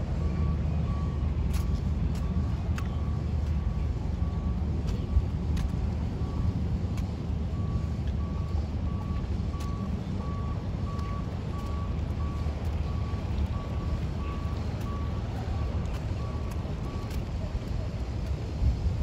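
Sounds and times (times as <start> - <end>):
low engine rumble: 0.0 - 19.0
reversing alarm beeping: 0.1 - 4.6, 7.5 - 17.2.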